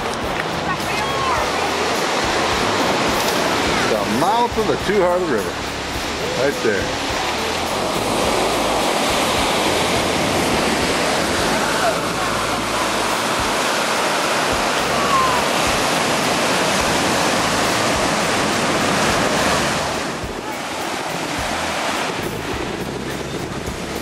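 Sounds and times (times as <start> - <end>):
waves breaking on pebble shore: 0.0 - 24.0
wind buffeting microphone: 5.7 - 24.0.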